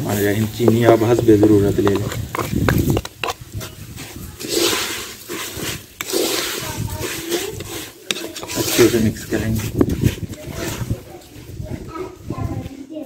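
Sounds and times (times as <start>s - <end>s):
wooden spatula scraping a pan: 0.0s - 11.9s
sugar pouring: 4.3s - 10.2s.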